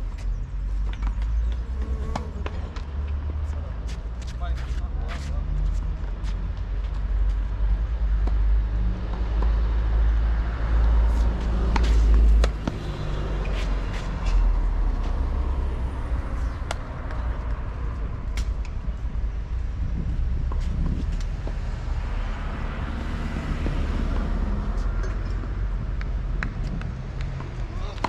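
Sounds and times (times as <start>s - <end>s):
tennis balls bouncing on court: 0.1s - 4.8s, 6.0s - 10.3s, 11.1s - 14.4s, 16.5s - 17.3s, 20.4s - 21.8s, 23.5s - 28.0s
tennis balls struck by racquets: 7.2s - 10.3s, 11.1s - 14.5s, 16.1s - 17.6s, 23.6s - 28.0s
wind rumbling on microphone: 8.8s - 28.0s.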